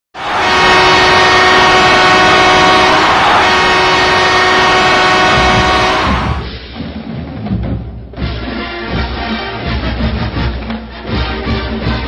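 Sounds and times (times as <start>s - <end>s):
ice hockey goal horn blast: 0.2s - 6.5s.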